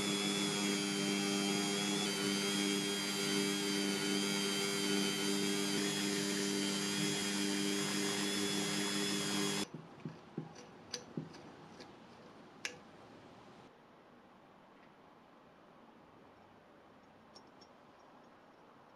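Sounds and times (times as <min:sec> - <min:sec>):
rotary tool grinding rust: 0:00.0 - 0:09.6.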